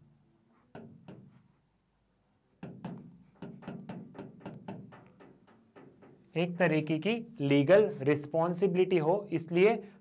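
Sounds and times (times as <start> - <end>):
marker squeaking on whiteboard: 0.0 - 6.4.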